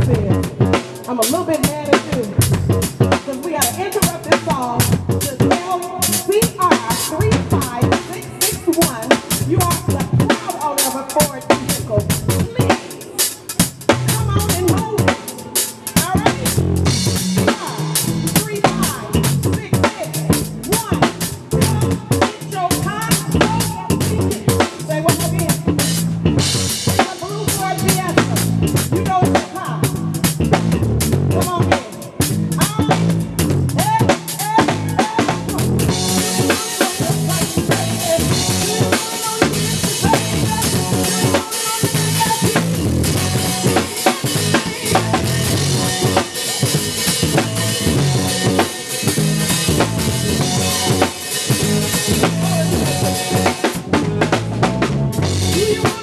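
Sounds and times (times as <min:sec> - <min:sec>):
bass line: 0:00.0 - 0:56.0
drum kit: 0:00.0 - 0:56.0
live band playing: 0:00.0 - 0:56.0
electric guitar: 0:23.0 - 0:56.0.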